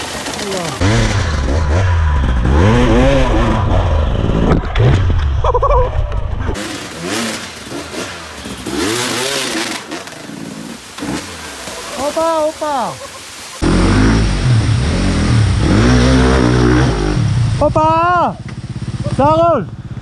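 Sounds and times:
dirt bike engines revving: 0.0 - 20.0
heavy low rumble: 0.8 - 6.6
rushing creek water: 6.6 - 16.4.

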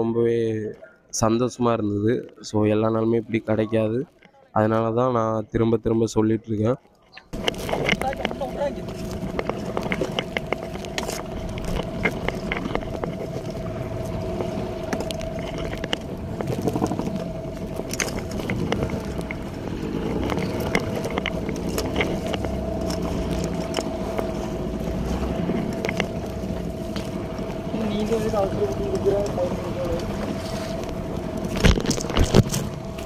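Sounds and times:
sharp clicks and knocks: 7.1 - 27.6, 30.8 - 33.0
boat engine running: 7.2 - 33.0.

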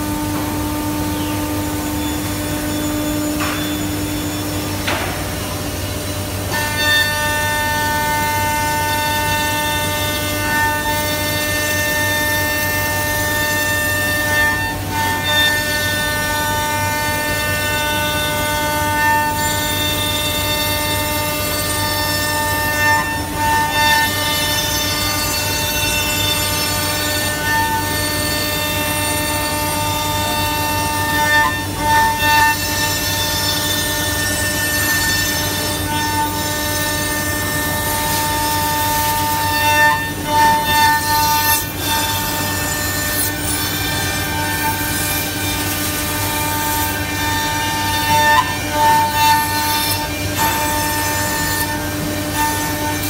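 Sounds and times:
router bits cutting wood: 13.8 - 53.0.

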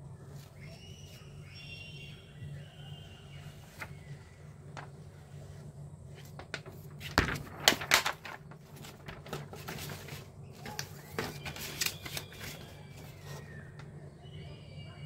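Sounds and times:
paper and plastic rustling: 6.2 - 14.0.

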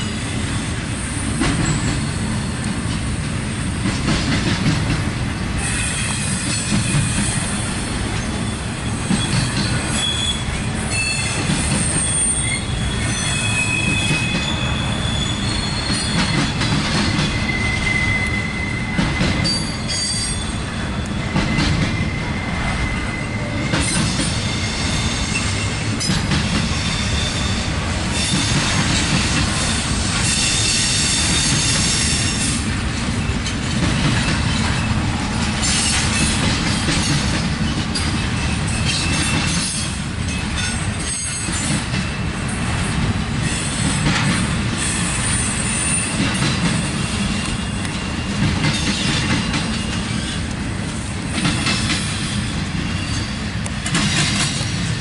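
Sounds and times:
train wheels rumbling on rail: 0.0 - 55.0
high-pitched wheel squeal: 5.6 - 7.6, 8.4 - 25.8, 26.6 - 28.4
wheels clicking over rail joints: 28.1 - 45.5, 46.1 - 55.0.

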